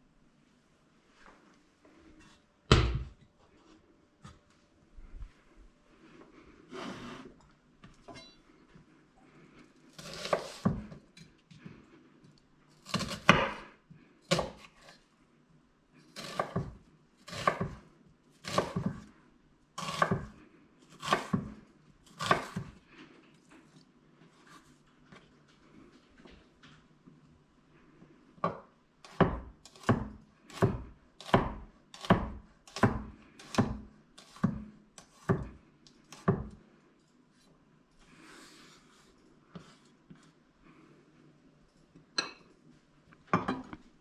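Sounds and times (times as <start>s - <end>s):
knife cutting onion on board: 10.0s - 11.0s, 12.8s - 13.7s, 14.3s - 15.0s, 16.1s - 17.8s, 18.4s - 19.1s, 19.8s - 22.8s, 29.1s - 36.6s.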